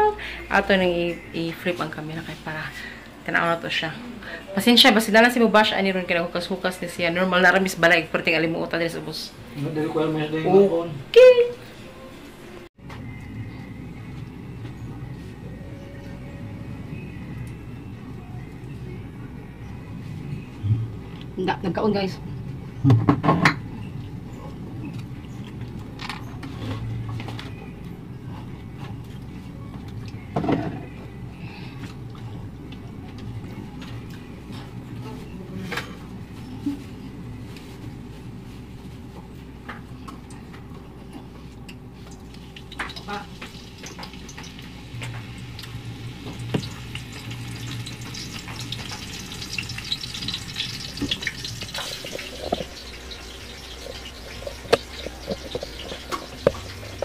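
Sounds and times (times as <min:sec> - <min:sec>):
food frying in oil: 0:41.9 - 0:57.0.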